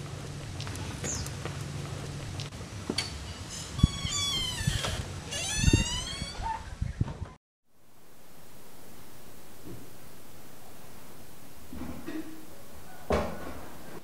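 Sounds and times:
dull thumps: 0:11.4 - 0:14.0.

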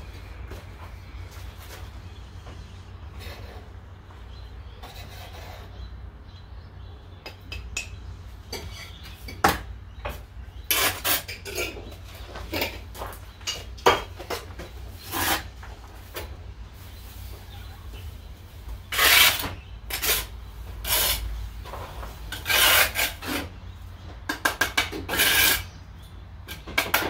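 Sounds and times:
trowel scraping mortar in bucket: 0:10.7 - 0:11.9, 0:15.0 - 0:15.5, 0:18.9 - 0:23.5, 0:24.8 - 0:25.7.

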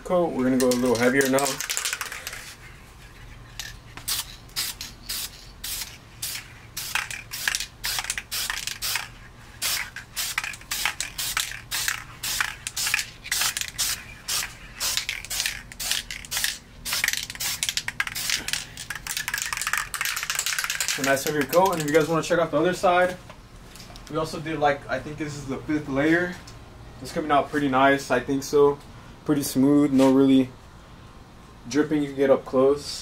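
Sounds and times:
spray can hissing in bursts: 0:04.0 - 0:21.8.

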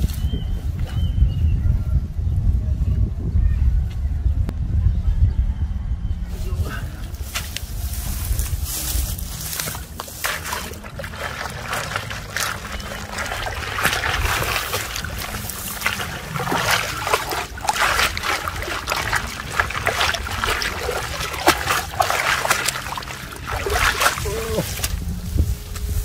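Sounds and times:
net splashing in pond water: 0:09.5 - 0:25.0.

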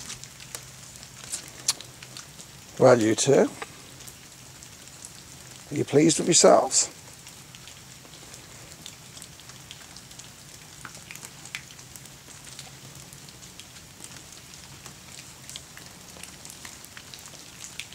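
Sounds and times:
rain pattering on wooden deck: 0:00.0 - 0:17.9
drip ticks: 0:08.8 - 0:13.0.

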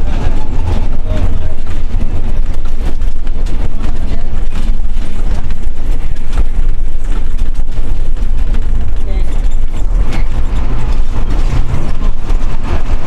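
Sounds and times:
bus engine and road noise: 0:00.0 - 0:13.0
knocks and rattles: 0:00.0 - 0:13.0.

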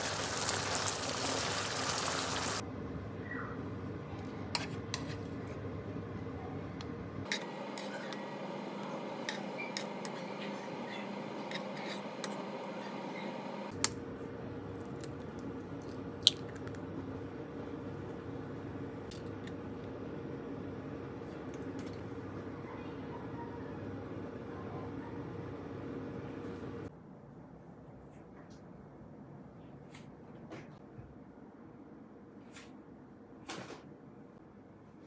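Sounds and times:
metal spoon scraping pan: 0:07.3 - 0:13.5.

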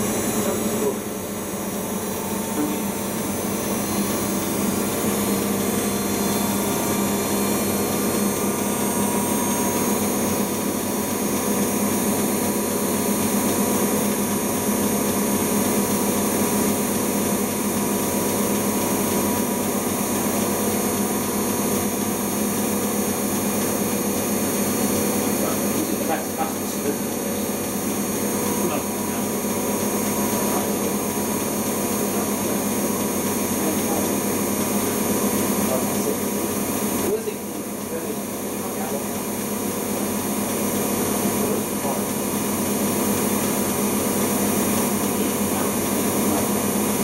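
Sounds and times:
washing machine spinning: 0:00.0 - 0:47.0.

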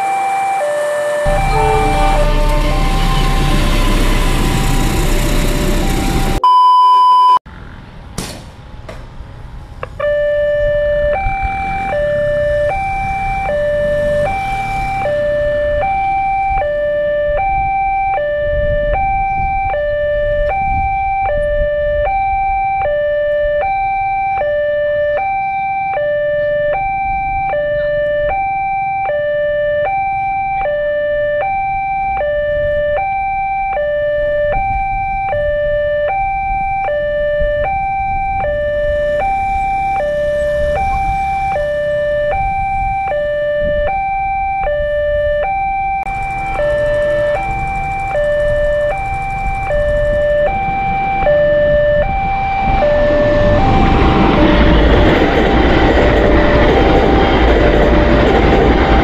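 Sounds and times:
passing train rumble: 0:00.0 - 0:06.4, 0:07.5 - 0:22.5, 0:36.2 - 0:43.8, 0:46.1 - 0:59.0
loud steady beep: 0:00.0 - 0:07.4, 0:34.5 - 0:54.4
two-tone crossing alarm: 0:00.0 - 0:07.4, 0:09.8 - 0:59.0.

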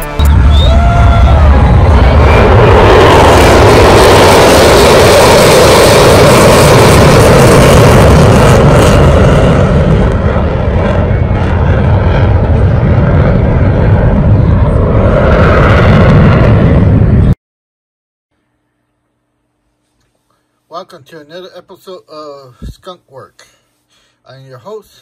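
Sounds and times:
fighter jet flying past: 0:00.0 - 0:17.4.

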